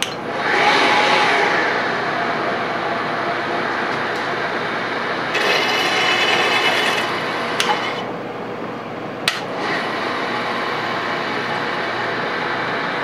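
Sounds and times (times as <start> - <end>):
milling machine spindle running: 0.0 - 8.2.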